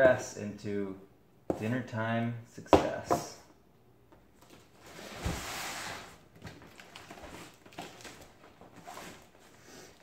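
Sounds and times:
cardboard and plastic wrap rustling: 4.4 - 10.0
box scraping on floor: 4.8 - 6.2, 8.8 - 9.4.

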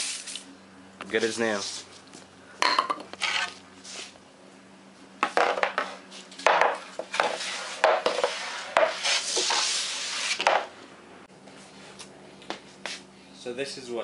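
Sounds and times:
puck scraping across board: 3.2 - 4.2, 5.7 - 10.7.

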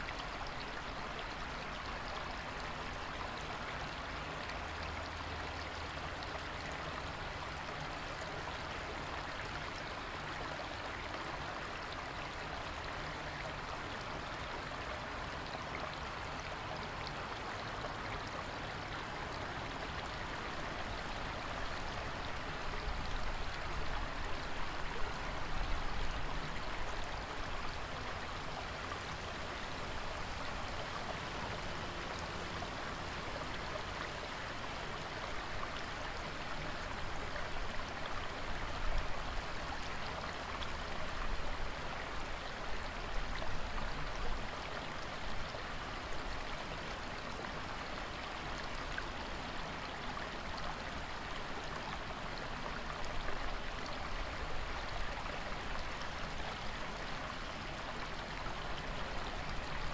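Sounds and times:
small waterfall splashing: 0.0 - 59.9.

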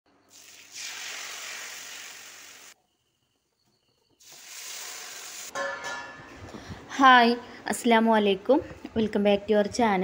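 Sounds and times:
liquid sizzling in hot wok: 0.2 - 2.8, 4.2 - 5.6
batter sizzling in pan: 0.3 - 2.8, 4.2 - 5.5.

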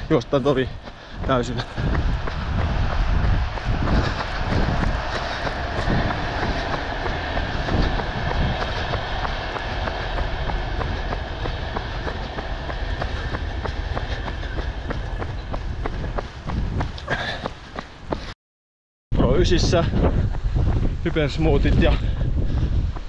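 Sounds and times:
wind rumbling on microphone: 0.0 - 18.3, 19.1 - 23.0
running footsteps: 0.0 - 18.4, 19.7 - 23.0.

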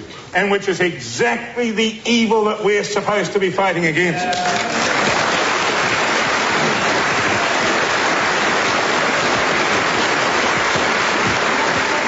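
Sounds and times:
large audience applauding: 4.3 - 12.0.

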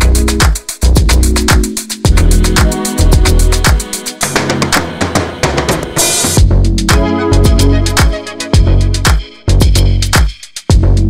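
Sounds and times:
upbeat music with kick drum beat: 0.0 - 11.0.

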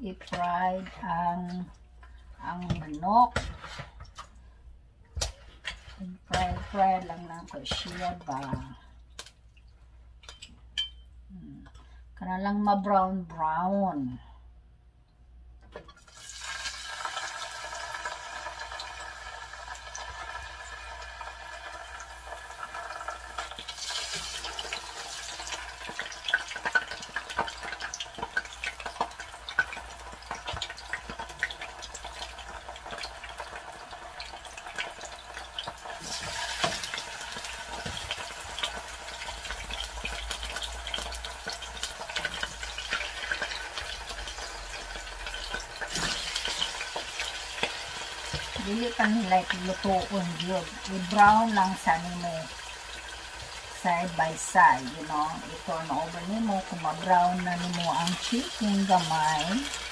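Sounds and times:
chicken sizzling in hot oil: 16.0 - 59.9.

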